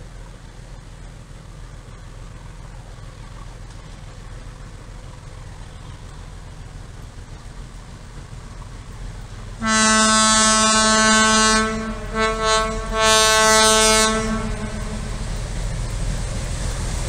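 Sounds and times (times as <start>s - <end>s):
train rumble: 0.0s - 17.0s
locomotive horn blasts: 9.6s - 15.4s.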